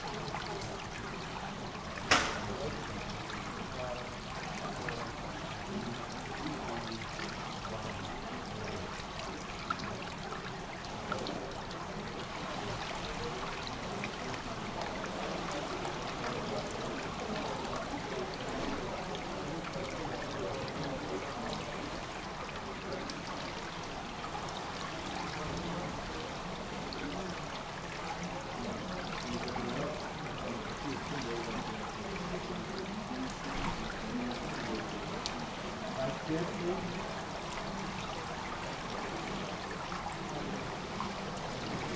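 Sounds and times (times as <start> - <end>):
water trickling into gutter: 0.0 - 41.9.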